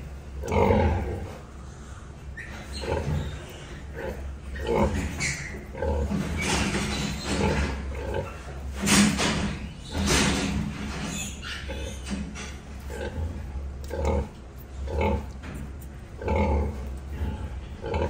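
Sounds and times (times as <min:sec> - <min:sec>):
pigs grunting and squealing: 0:00.0 - 0:01.6, 0:02.2 - 0:18.0.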